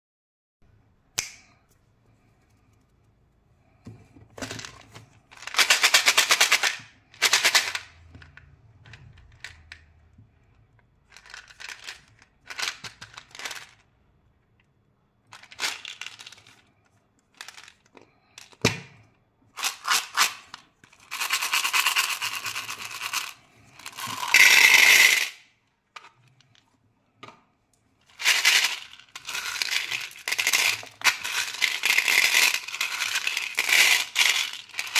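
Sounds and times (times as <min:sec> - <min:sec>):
candies rattling in plastic tub: 0:04.4 - 0:09.8, 0:11.0 - 0:13.9, 0:15.3 - 0:16.7, 0:17.3 - 0:18.6, 0:19.6 - 0:25.4, 0:28.1 - 0:34.9
candies pouring into a bowl: 0:21.0 - 0:25.4, 0:28.1 - 0:34.9.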